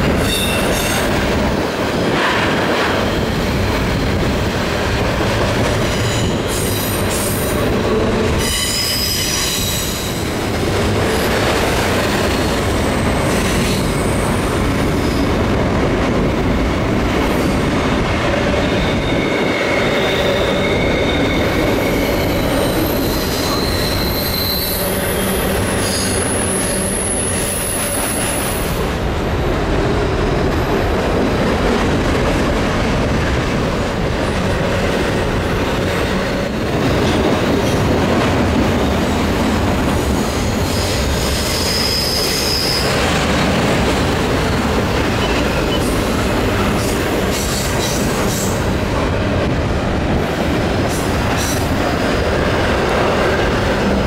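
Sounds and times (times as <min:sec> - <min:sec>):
diesel locomotive passing: 0:00.0 - 0:54.0
train wheels rumbling on rails: 0:00.0 - 0:54.0
wheel flange squeals: 0:18.6 - 0:28.3.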